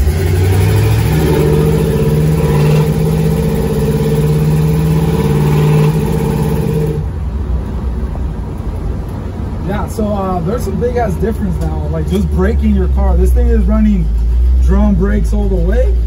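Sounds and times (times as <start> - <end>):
car engine accelerating: 0.0 - 7.5.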